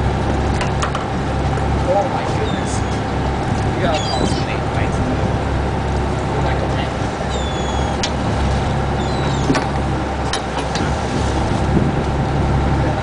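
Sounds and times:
boat engine droning: 0:00.0 - 0:13.0
high falling squeak: 0:09.0 - 0:09.6.

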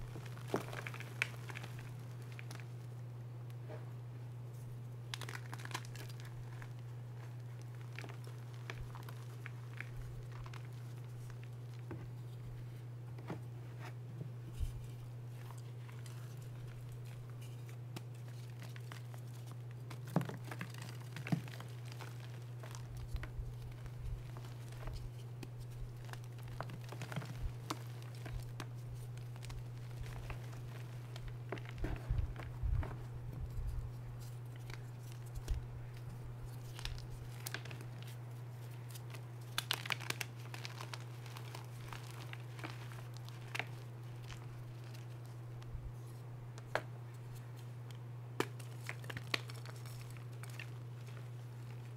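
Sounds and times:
chalk crunching and crackling: 0:00.0 - 0:02.8, 0:14.5 - 0:47.7, 0:48.4 - 0:51.9
steady low hum: 0:00.0 - 0:51.9.

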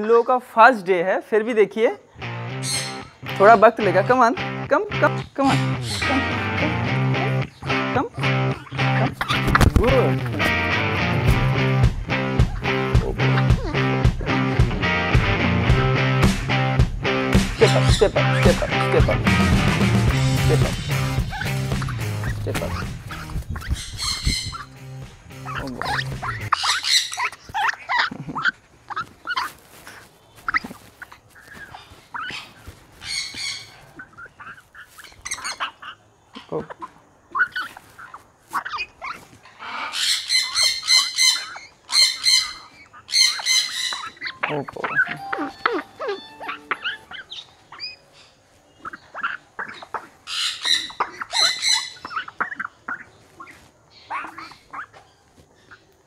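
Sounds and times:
parrots squawking and whistling: 0:02.6 - 0:03.2, 0:05.5 - 0:11.2, 0:17.6 - 0:55.8.

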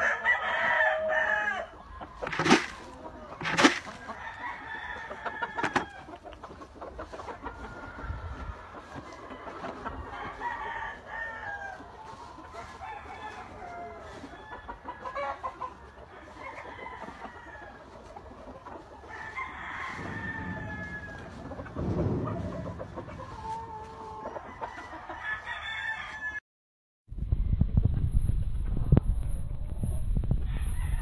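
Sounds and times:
roosters clucking and crowing: 0:00.0 - 0:26.4, 0:29.5 - 0:31.0
low rumble: 0:20.0 - 0:24.0.

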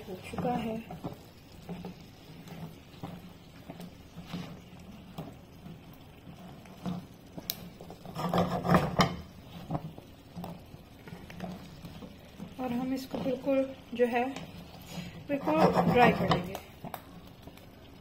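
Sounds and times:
spatula scraping frying pan: 0:00.0 - 0:17.0
chestnuts knocking in pan: 0:06.8 - 0:10.6.

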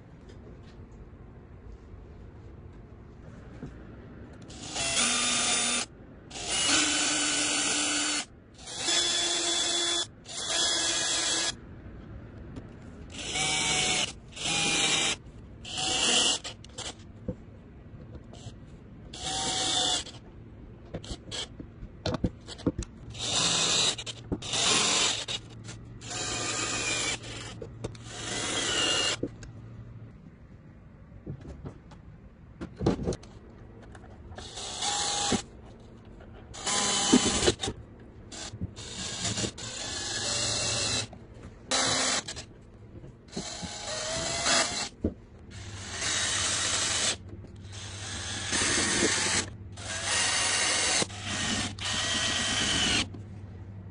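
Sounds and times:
cordless drill driving screws: 0:04.5 - 0:11.6, 0:13.1 - 0:17.0, 0:19.2 - 0:20.2, 0:23.1 - 0:25.4, 0:26.0 - 0:29.2, 0:36.6 - 0:37.7, 0:38.4 - 0:41.1, 0:41.7 - 0:42.4, 0:43.3 - 0:44.9, 0:45.6 - 0:53.1.

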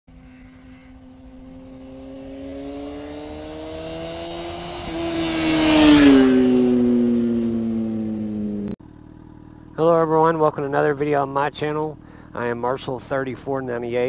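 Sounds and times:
motorcycle passing by: 0:00.1 - 0:09.4.

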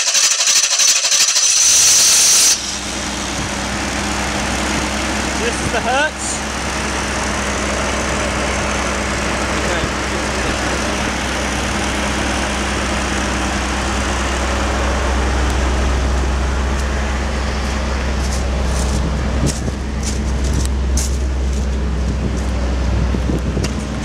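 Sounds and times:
generator engine running steadily: 0:00.0 - 0:24.0
footsteps on gravel: 0:16.7 - 0:23.0.

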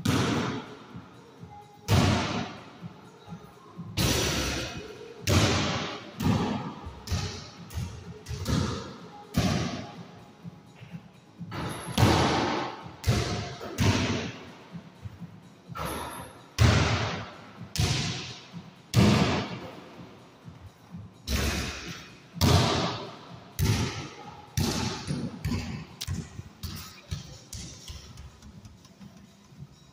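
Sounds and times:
basketball bouncing with echo: 0:00.0 - 0:00.7, 0:04.0 - 0:10.0, 0:10.8 - 0:19.6, 0:21.3 - 0:29.2.

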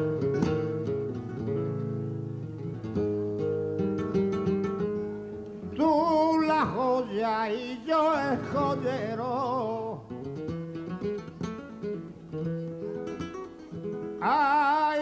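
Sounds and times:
flamenco guitar playing: 0:00.0 - 0:15.0
man singing flamenco: 0:03.0 - 0:15.0.

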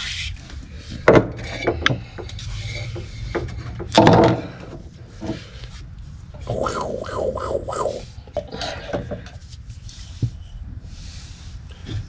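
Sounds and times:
low steady hum: 0:05.8 - 0:10.1.

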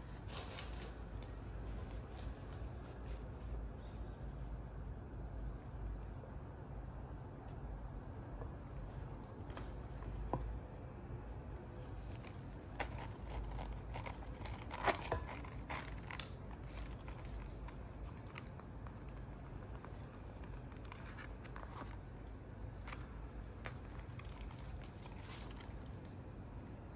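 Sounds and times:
steady low hum: 0:00.0 - 0:26.9
leather pouch rustling and scraping: 0:00.2 - 0:02.6, 0:11.9 - 0:18.4.

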